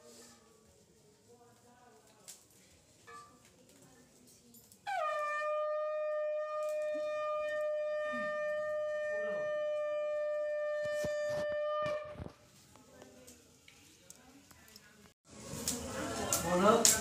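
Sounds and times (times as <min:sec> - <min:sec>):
conch shell blown: 0:04.8 - 0:12.4.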